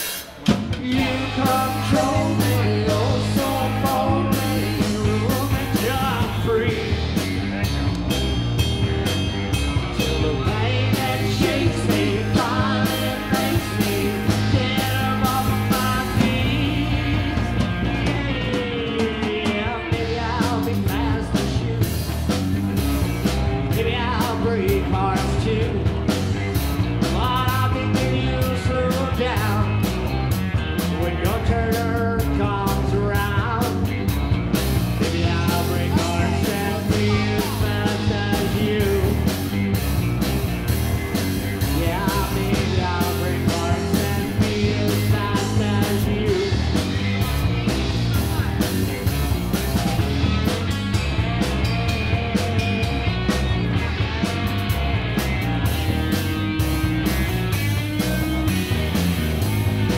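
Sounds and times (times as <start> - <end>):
live rock band: 0.0 - 59.9
man singing: 0.5 - 7.7, 9.7 - 29.9, 30.6 - 34.0, 34.9 - 39.8, 41.5 - 49.2.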